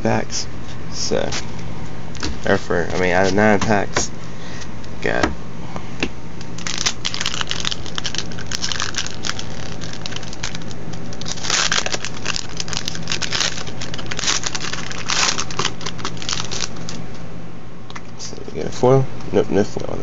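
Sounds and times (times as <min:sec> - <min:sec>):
foil wrapper crinkling and tearing: 0:06.6 - 0:17.0.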